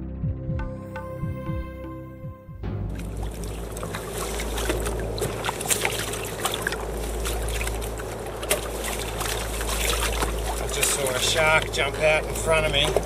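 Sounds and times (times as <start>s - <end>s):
water slapping along a hull: 2.6s - 13.0s.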